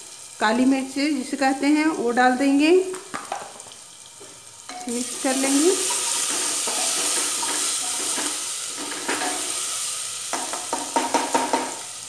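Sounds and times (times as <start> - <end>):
spices sizzling in hot oil: 0.0 - 12.0
spatula scraping and knocking pot: 5.8 - 9.5.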